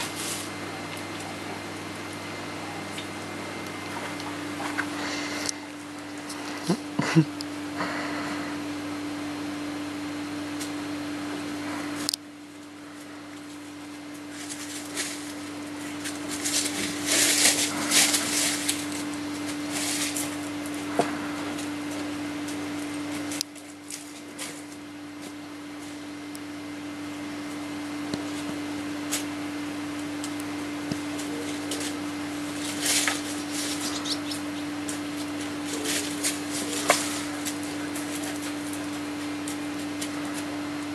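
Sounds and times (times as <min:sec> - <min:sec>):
dogs rustling through undergrowth: 0:00.0 - 0:06.6, 0:13.0 - 0:26.1, 0:30.0 - 0:40.9
low hum: 0:00.0 - 0:40.9.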